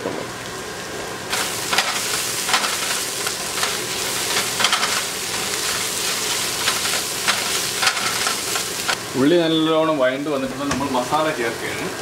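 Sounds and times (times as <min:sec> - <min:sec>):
food sizzling in oil: 0:00.0 - 0:12.0
wooden spatula scraping pan: 0:01.7 - 0:09.0.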